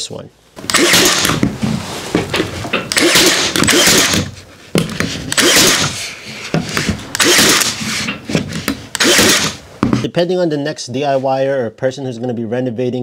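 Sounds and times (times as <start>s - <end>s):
nailer firing with motor whir: 0.6s - 1.6s, 2.9s - 4.3s, 4.9s - 6.0s, 7.1s - 8.0s, 8.6s - 9.6s.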